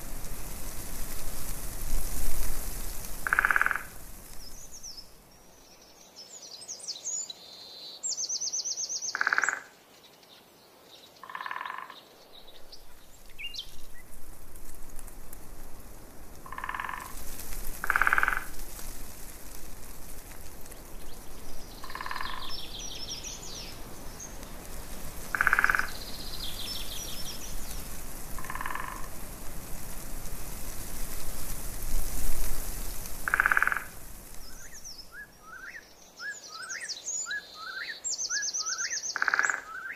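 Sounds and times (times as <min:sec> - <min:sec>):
steady rushing noise: 0:00.0 - 0:05.2, 0:12.7 - 0:35.0
frogs croaking: 0:03.1 - 0:04.1, 0:09.1 - 0:09.8, 0:11.2 - 0:12.2, 0:16.4 - 0:17.2, 0:17.8 - 0:18.6, 0:21.7 - 0:23.0, 0:25.2 - 0:29.2, 0:33.2 - 0:35.8, 0:38.7 - 0:39.9.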